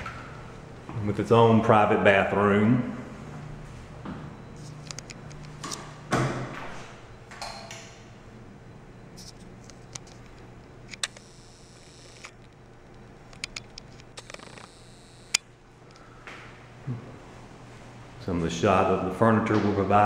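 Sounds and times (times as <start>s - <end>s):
steady low hum: 0.0s - 20.0s
sharp clicks: 9.2s - 12.6s, 13.3s - 15.4s.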